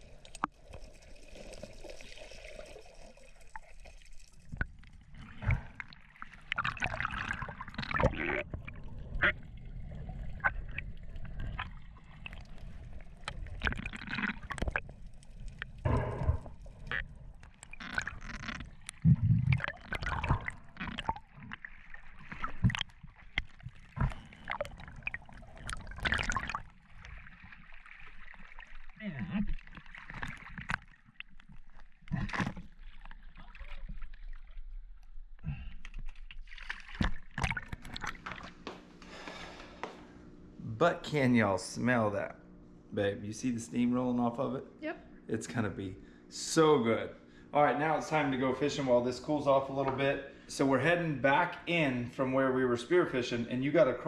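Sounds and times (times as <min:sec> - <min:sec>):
muffled underwater water gurgling: 0:04.5 - 0:30.8.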